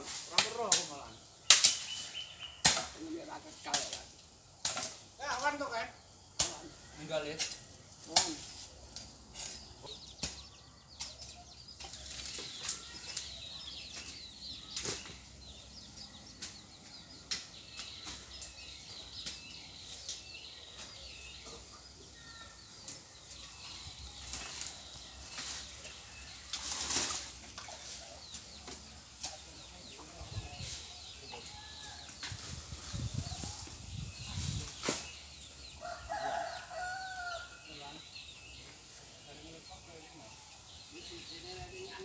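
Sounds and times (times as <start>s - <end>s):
small birds chirping: 0.0s - 42.0s
rustles and clicks: 24.2s - 29.5s.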